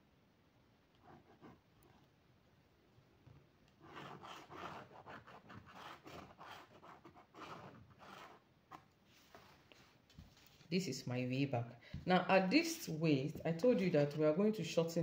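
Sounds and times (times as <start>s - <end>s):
pen scratching on paper: 3.8s - 8.8s.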